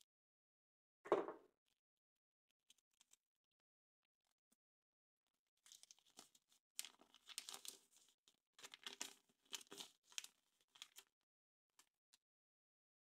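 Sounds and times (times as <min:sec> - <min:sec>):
foil wrapper crinkling: 0:05.7 - 0:11.1.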